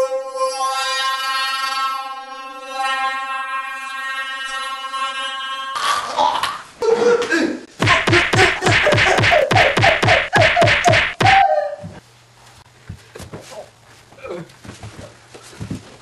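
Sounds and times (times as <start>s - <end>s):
whacks in a mock fight: 7.8s - 11.4s
scuffling: 7.8s - 16.0s.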